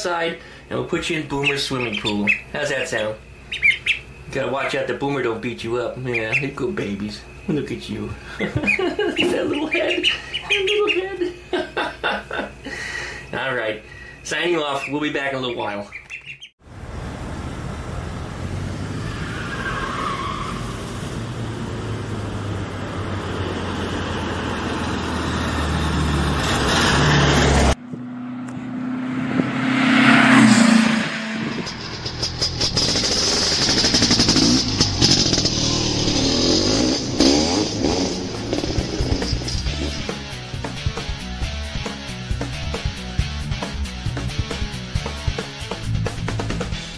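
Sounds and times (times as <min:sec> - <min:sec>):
loud vehicle passing: 0:16.7 - 0:40.4
vehicle engine speeding up: 0:16.7 - 0:41.0.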